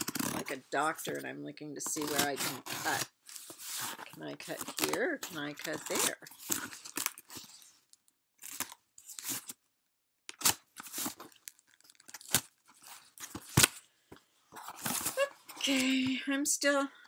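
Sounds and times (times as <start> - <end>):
blade cutting cardboard box: 0.0 - 0.5, 1.9 - 4.9.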